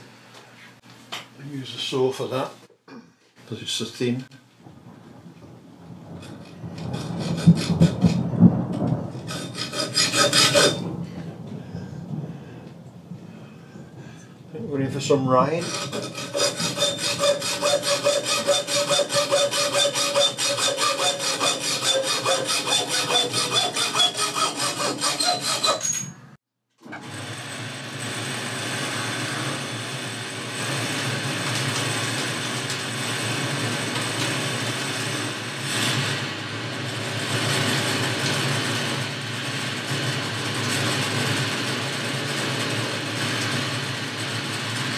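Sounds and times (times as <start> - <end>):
hacksaw cutting rod: 6.2 - 8.2, 9.2 - 10.8, 15.6 - 26.1
lathe running: 9.2 - 10.8, 15.6 - 25.8.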